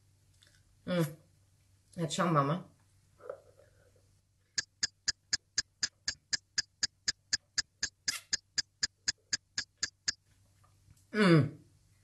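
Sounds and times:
rapid clock-like ticking: 4.5s - 10.2s.

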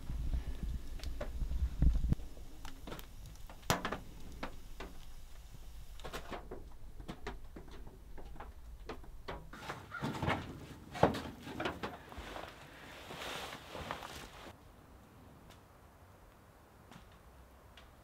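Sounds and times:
wood fire crackling and popping: 0.0s - 9.6s
rustling and handling: 2.2s - 14.6s.

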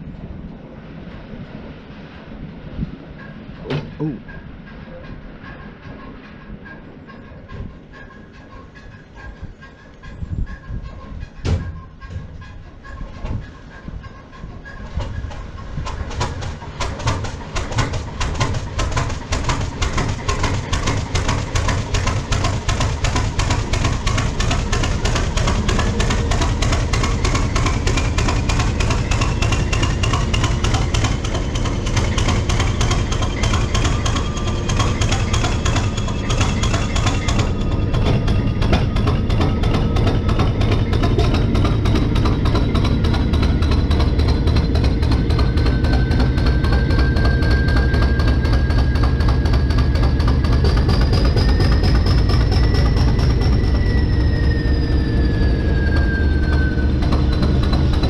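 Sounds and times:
diesel locomotive engine knocking: 2.8s - 58.0s
thin rising whine: 21.3s - 58.0s.

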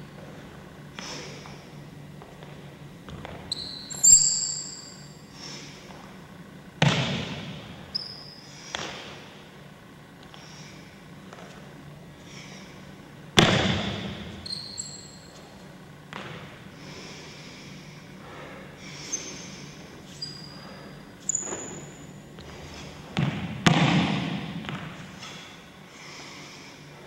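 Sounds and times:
brief high squeaks: 3.5s - 5.0s, 7.9s - 8.5s, 14.4s - 15.3s, 20.1s - 22.0s.

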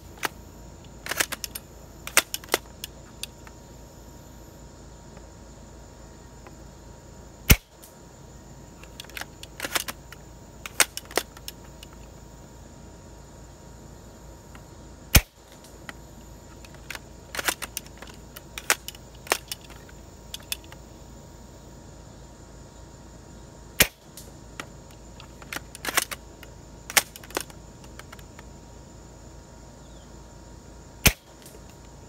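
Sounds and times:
airsoft rifle shots: 1.0s - 2.7s, 7.5s - 7.9s, 15.1s - 15.6s, 23.8s - 24.2s, 31.0s - 31.5s
rifle bolt clicking: 1.0s - 3.4s, 8.8s - 10.0s.

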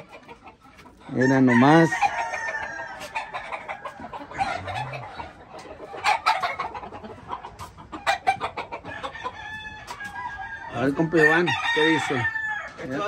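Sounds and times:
chickens clucking: 0.0s - 13.0s
rooster crowing: 1.2s - 3.8s, 9.0s - 12.8s
footsteps on dirt path: 2.0s - 10.6s.

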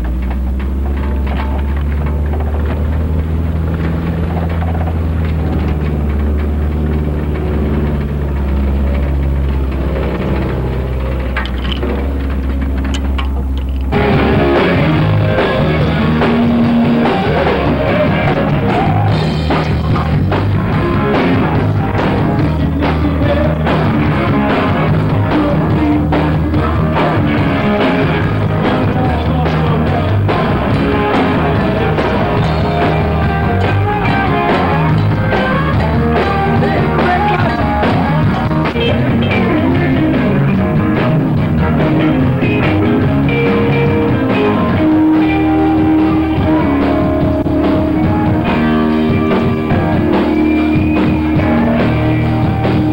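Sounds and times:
rock band playing: 0.0s - 52.9s
man singing into a microphone: 20.7s - 27.9s, 28.6s - 40.3s.

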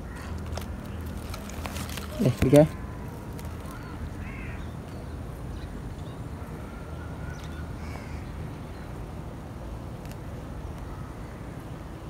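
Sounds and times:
faint bird calls: 0.0s - 5.0s, 5.6s - 8.9s.

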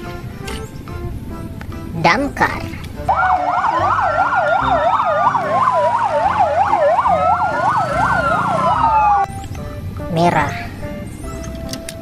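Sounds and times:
siren fast yelp: 3.1s - 9.3s
siren slow wail: 3.1s - 9.3s.

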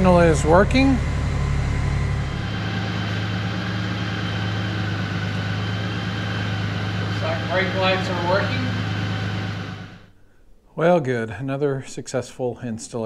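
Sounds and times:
motorcycle engine idling: 0.0s - 10.1s.

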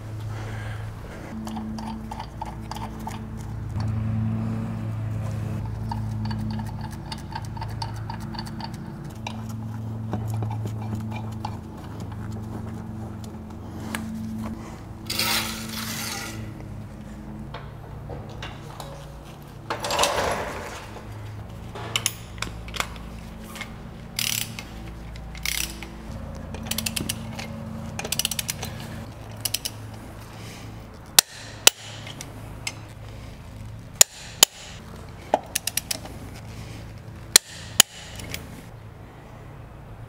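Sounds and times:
sharp metal clicks: 5.6s - 11.7s, 21.8s - 30.1s, 31.0s - 33.0s, 34.0s - 36.4s, 37.3s - 38.6s
floor jack clatter: 19.7s - 21.1s
socket ratchet clicking: 24.1s - 26.0s, 26.6s - 30.0s, 31.2s - 32.8s, 34.0s - 36.1s, 37.3s - 38.5s.

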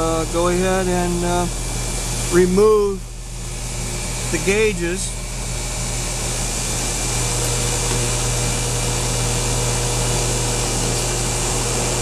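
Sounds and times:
air conditioner unit humming: 0.0s - 12.0s.

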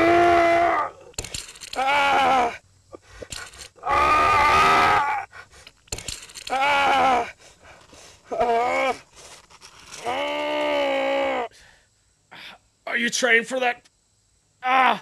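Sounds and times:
man moaning in pain: 6.5s - 7.4s, 10.0s - 11.5s.

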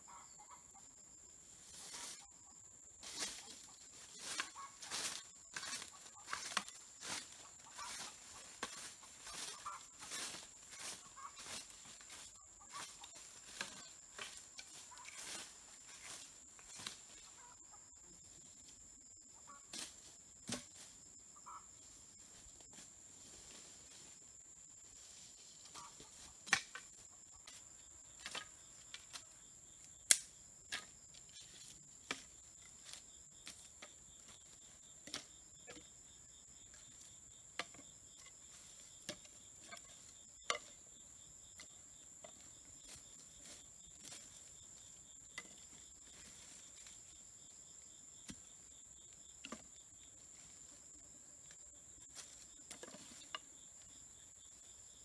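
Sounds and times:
crickets chirping: 0.0s - 55.0s.

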